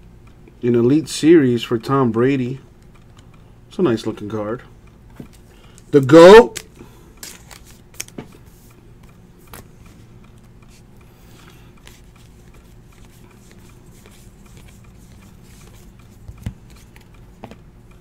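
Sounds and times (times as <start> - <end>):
low room hum: 0.0 - 18.0
trading cards sliding: 5.2 - 17.6.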